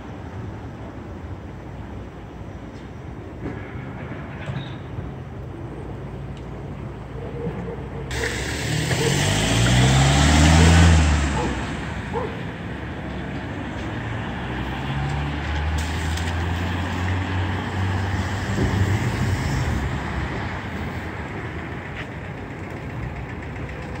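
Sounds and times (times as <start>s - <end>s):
street traffic noise: 0.0s - 24.0s
vehicle engine drone: 5.1s - 24.0s.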